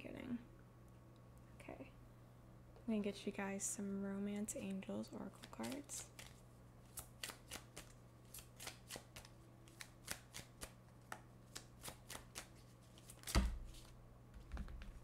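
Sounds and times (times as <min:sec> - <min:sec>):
cards being shuffled: 0:05.3 - 0:15.0.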